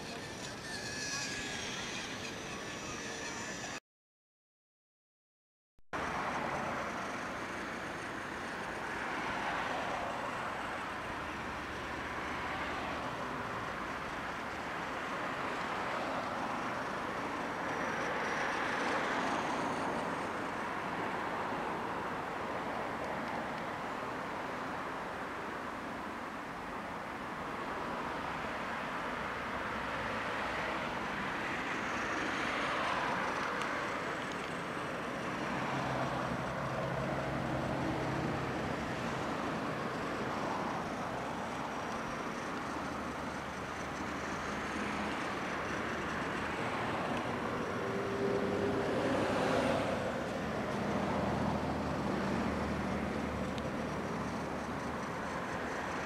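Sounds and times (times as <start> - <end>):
toy train whirring: 0.0 - 3.8, 6.1 - 20.6, 31.2 - 36.7, 38.8 - 47.8, 53.5 - 56.0.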